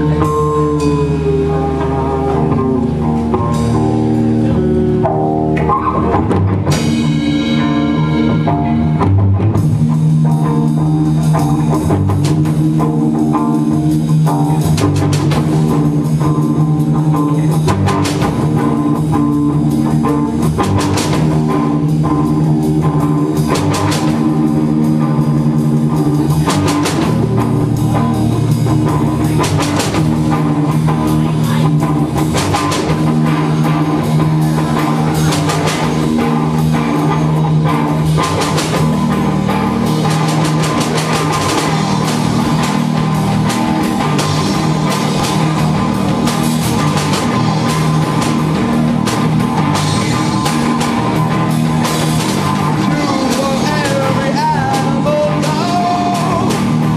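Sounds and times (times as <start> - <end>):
drum kit: 0.0 - 56.9
electric guitar chords: 0.0 - 56.9.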